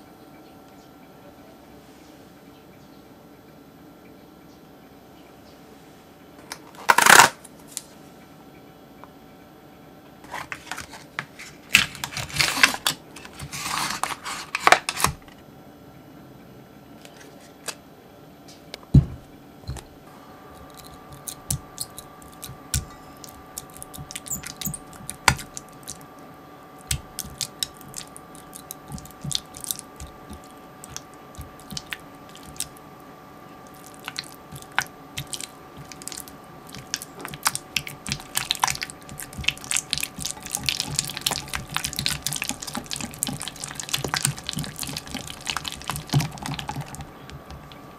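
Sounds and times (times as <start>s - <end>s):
faint steady hum: 0.0s - 47.9s
crinkly rustling: 10.3s - 15.3s.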